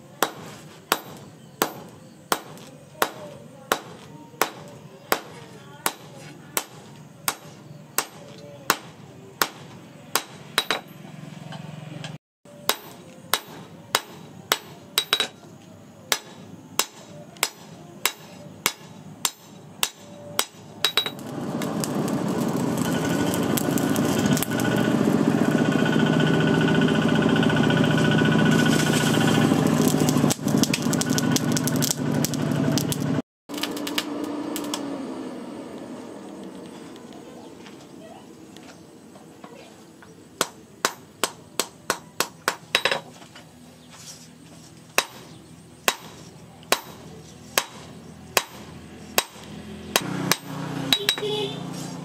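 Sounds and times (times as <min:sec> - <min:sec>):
hammer striking hot metal on anvil: 0:00.2 - 0:11.0, 0:12.6 - 0:15.4, 0:16.1 - 0:21.3, 0:40.4 - 0:43.1, 0:45.0 - 0:51.4
forge fire roaring: 0:21.1 - 0:37.6.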